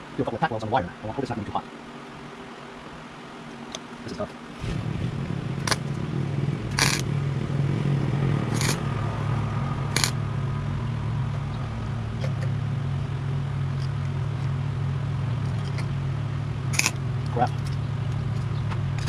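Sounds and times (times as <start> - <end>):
welder low hum: 0.0 - 19.0
crackling tack welds: 3.7 - 14.6, 16.6 - 19.0.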